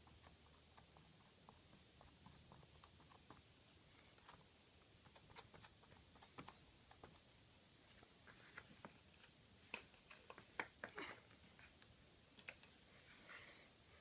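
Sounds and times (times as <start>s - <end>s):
soft rustle: 0.0s - 14.0s.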